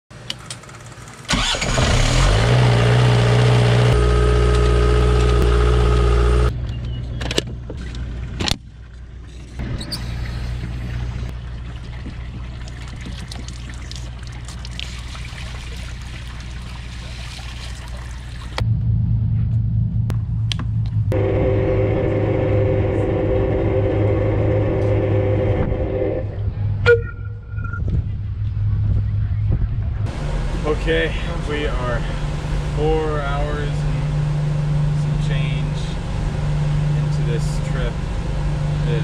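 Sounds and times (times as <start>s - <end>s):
generator cranking and running: 0.2s - 6.5s, 30.1s - 39.0s
quiet engine hum: 2.9s - 39.0s.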